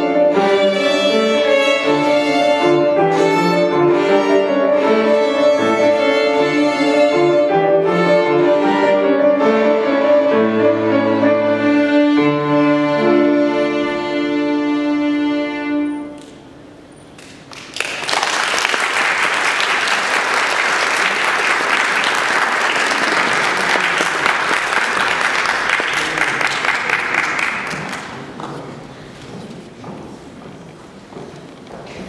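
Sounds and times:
violin and piano chord: 0:00.0 - 0:16.2
audience applauding: 0:17.2 - 0:28.4.

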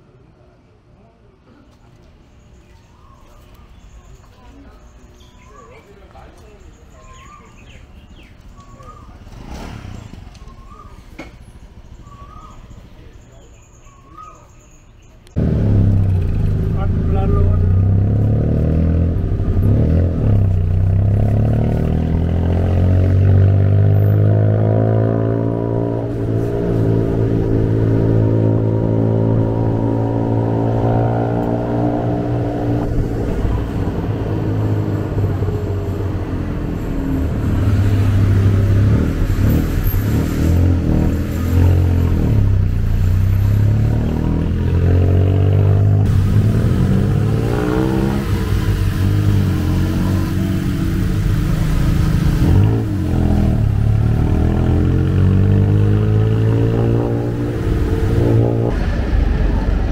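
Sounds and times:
engine revving: 0:09.0 - 0:10.8, 0:15.4 - 0:59.9.

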